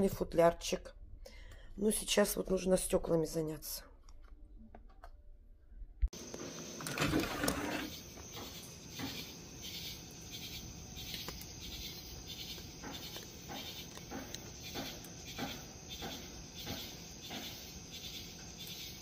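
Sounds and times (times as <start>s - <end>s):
insects trilling and chirping: 6.2s - 19.0s.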